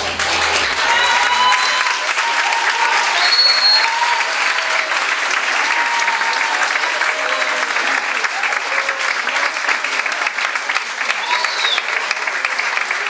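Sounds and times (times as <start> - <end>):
low bass note: 0.0 - 1.5
audience applauding and cheering: 0.0 - 13.0
whoops from audience: 0.2 - 9.5, 11.0 - 12.2.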